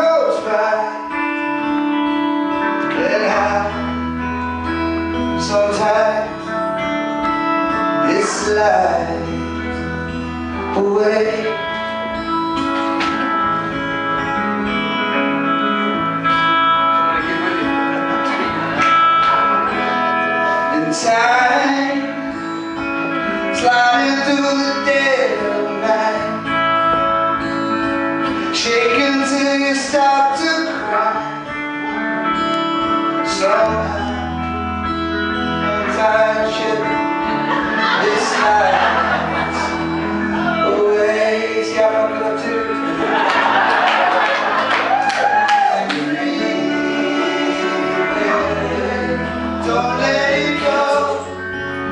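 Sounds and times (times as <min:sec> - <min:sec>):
low bass line: 0:00.0 - 0:43.6, 0:45.0 - 0:51.9
sustained keyboard chords: 0:00.0 - 0:44.9, 0:45.8 - 0:51.9
strummed acoustic guitar: 0:00.0 - 0:45.0, 0:45.8 - 0:51.9
electric guitar: 0:00.0 - 0:51.9
men singing: 0:02.9 - 0:03.9, 0:05.4 - 0:06.5, 0:08.0 - 0:09.4, 0:20.7 - 0:22.4, 0:23.4 - 0:26.5, 0:28.4 - 0:31.3, 0:33.3 - 0:34.4, 0:35.6 - 0:44.6, 0:45.7 - 0:51.4.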